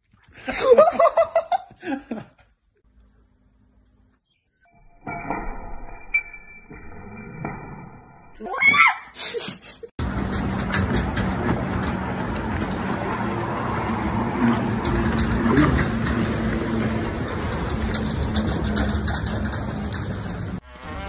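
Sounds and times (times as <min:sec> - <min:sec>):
lake water: 0:10.0 - 0:20.4
wind: 0:10.0 - 0:21.0.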